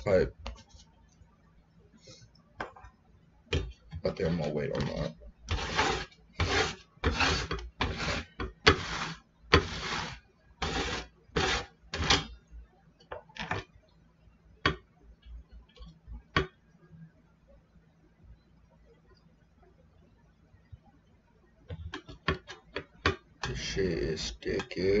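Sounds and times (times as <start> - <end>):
herb grinder grinding: 5.5 - 12.2.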